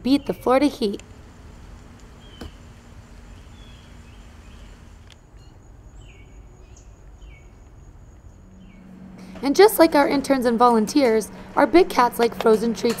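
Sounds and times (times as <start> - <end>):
outdoor background noise: 0.0 - 13.0
bird chirping: 1.8 - 9.1.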